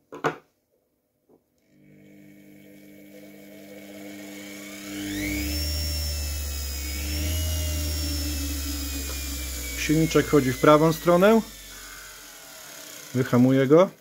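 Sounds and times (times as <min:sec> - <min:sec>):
motor whine rising in pitch: 0:01.8 - 0:13.7
strong low hum: 0:03.9 - 0:12.7.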